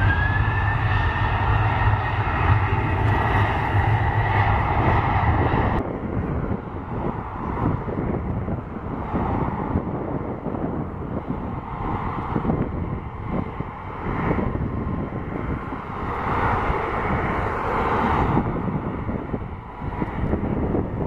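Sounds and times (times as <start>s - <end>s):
jet engines running at low power: 0.0s - 21.0s
wind buffeting the microphone: 0.0s - 21.0s.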